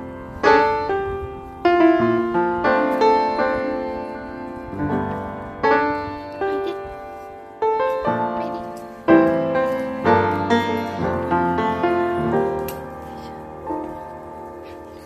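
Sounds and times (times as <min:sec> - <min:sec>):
piano chords ringing: 0:00.0 - 0:15.0.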